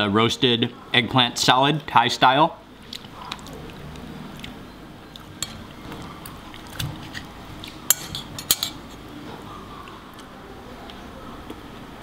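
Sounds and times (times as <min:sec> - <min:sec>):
cutlery clinking on a plate: 0:05.4 - 0:05.6, 0:07.9 - 0:08.8.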